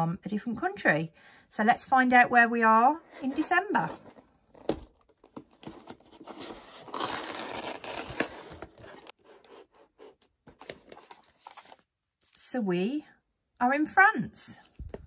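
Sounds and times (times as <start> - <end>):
cardboard flaps rustling: 3.2 - 11.8.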